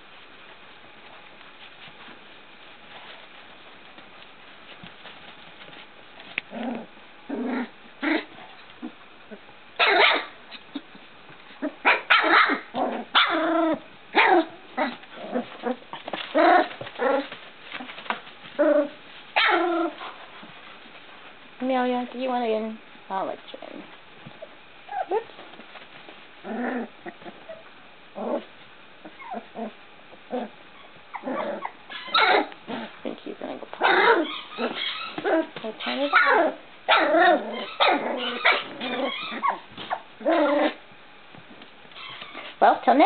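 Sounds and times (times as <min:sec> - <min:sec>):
puppies yapping: 0:15.7 - 0:20.2, 0:30.8 - 0:32.6, 0:33.8 - 0:40.8
puppies whimpering and yipping: 0:29.0 - 0:29.8, 0:34.0 - 0:40.8.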